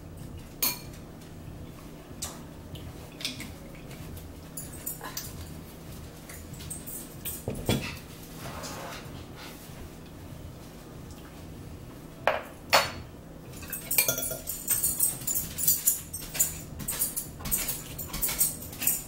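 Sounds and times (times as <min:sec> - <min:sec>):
fork clinking on ceramic bowl: 0:13.6 - 0:19.0.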